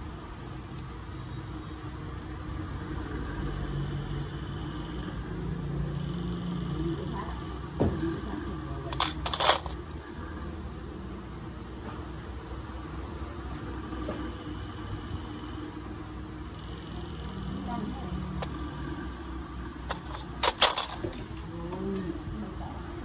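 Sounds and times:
metal tools clinking: 8.9s - 9.9s, 19.9s - 21.5s.

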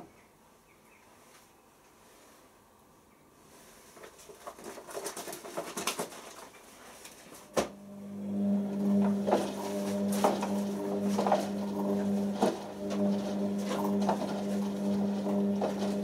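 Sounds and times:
soft patter from washing drum: 3.4s - 7.6s, 8.2s - 16.0s
drum motor humming: 7.6s - 16.0s.

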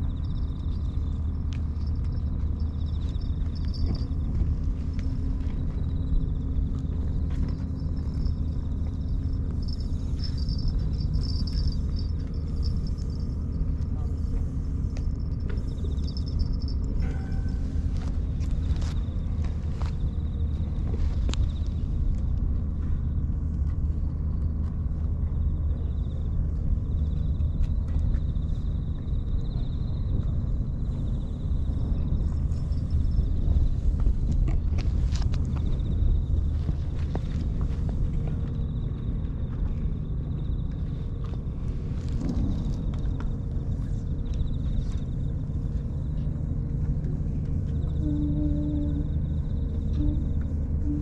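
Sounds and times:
wind rumble on microphone: 0.0s - 51.0s
wind buffeting microphone: 26.4s - 51.0s.

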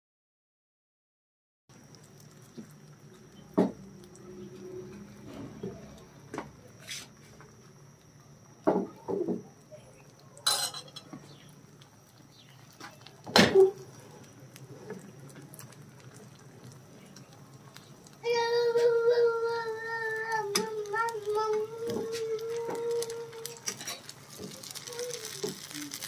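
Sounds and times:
utensils clinking on frying pan: 10.4s - 11.2s.

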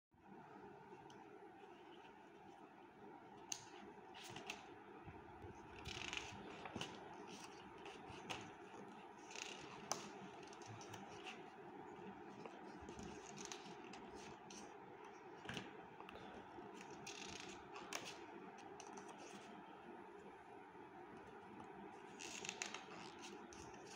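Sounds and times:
faint steady hum: 0.2s - 23.9s
book pages turning: 3.4s - 4.7s, 5.5s - 14.8s, 15.4s - 19.6s, 22.1s - 23.9s.

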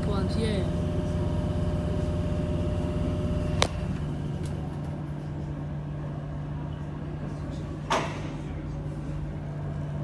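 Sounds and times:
train electrical hum: 0.0s - 10.0s.

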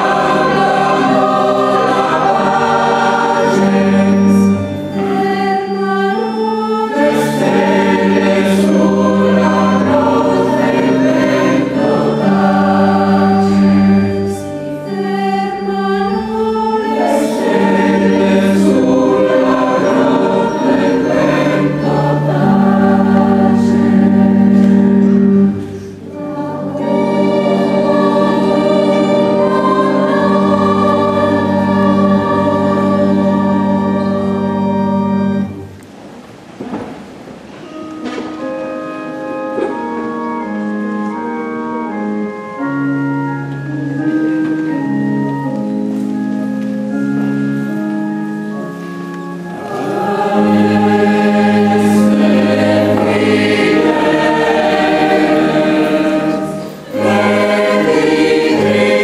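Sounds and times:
mixed choir singing: 0.0s - 35.7s, 49.3s - 59.0s.

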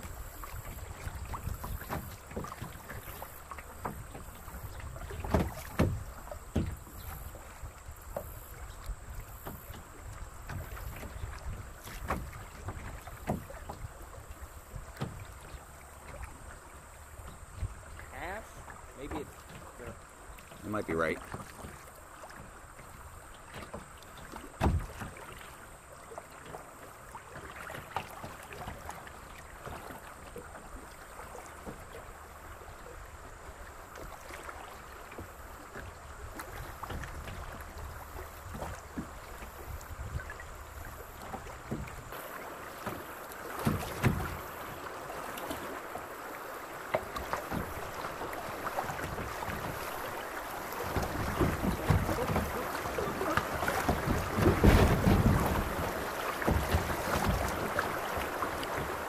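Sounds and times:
flowing creek water: 0.0s - 59.0s
kayak knocks: 0.0s - 59.0s
paddle splashes and drips: 0.0s - 59.0s.

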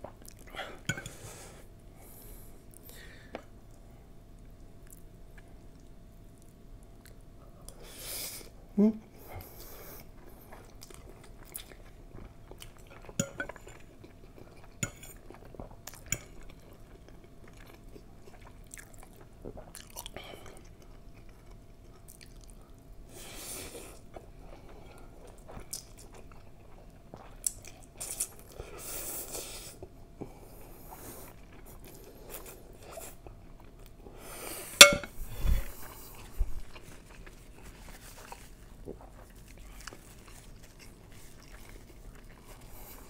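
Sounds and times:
noodles slurped and chewed: 35.8s - 43.0s.

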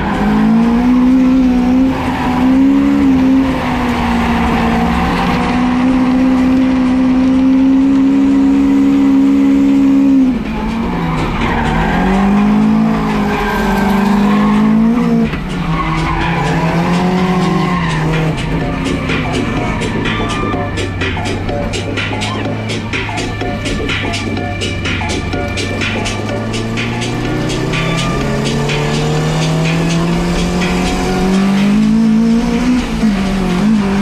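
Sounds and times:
car engine revving: 0.0s - 34.0s
tyres squealing: 10.4s - 31.4s.

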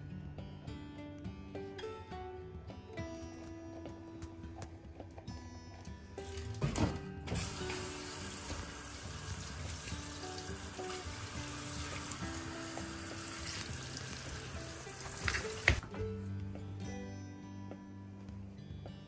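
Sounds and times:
soft background music: 0.0s - 19.0s
tap water running: 7.4s - 15.8s.

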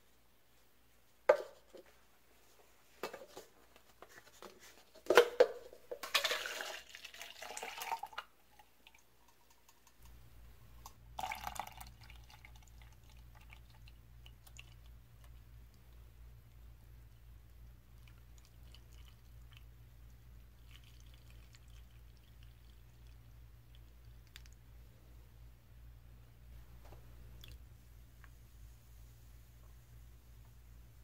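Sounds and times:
plastic cup knocking on counter: 1.3s - 1.8s
liquid pouring into cup: 6.1s - 10.1s, 11.2s - 14.9s, 20.5s - 24.4s
faint low hum: 6.9s - 31.0s.

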